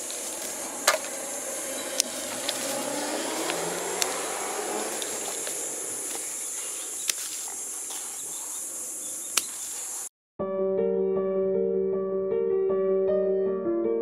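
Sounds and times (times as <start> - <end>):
secateurs snipping stems: 0.0 - 10.0
high-pitched insect drone: 0.0 - 10.1.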